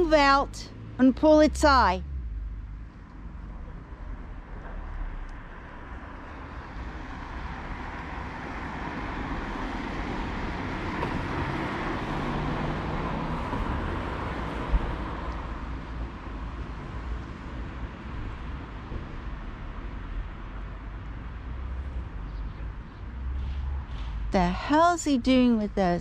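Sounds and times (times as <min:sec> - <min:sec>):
car driving past: 0:02.0 - 0:15.7.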